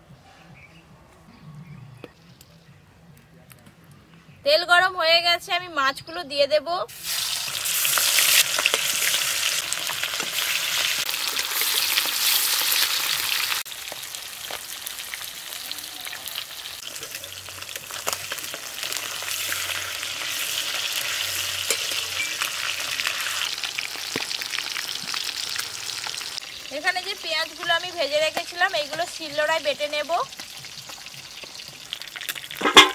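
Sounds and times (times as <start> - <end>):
fish frying in oil: 6.9 - 32.9.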